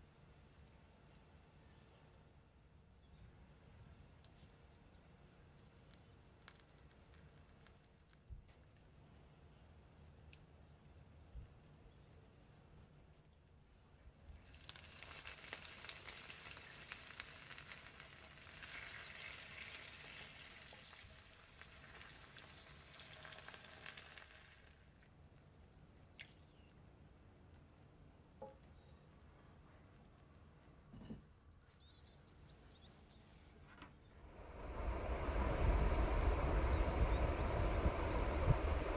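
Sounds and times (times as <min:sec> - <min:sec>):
sauce sizzling: 0:14.6 - 0:24.7.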